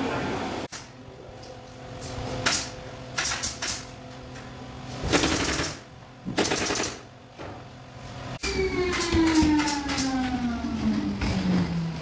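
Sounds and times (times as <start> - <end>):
pneumatic nail gun firing: 2.4 - 3.9, 5.0 - 7.1, 8.9 - 10.1.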